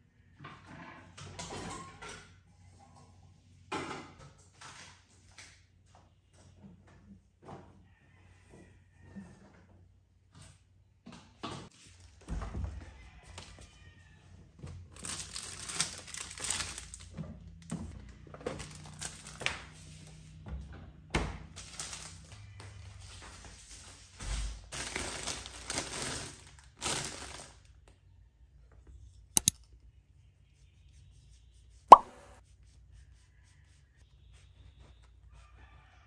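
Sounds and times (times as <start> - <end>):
plastic packaging rustling: 15.0 - 17.1, 18.5 - 19.4, 23.3 - 27.7
sharp clicks: 29.4 - 29.6.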